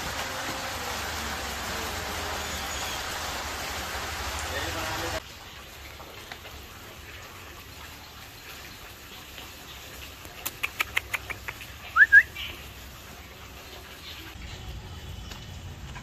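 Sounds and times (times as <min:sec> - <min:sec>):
rising whistled bird notes: 0:11.9 - 0:12.5.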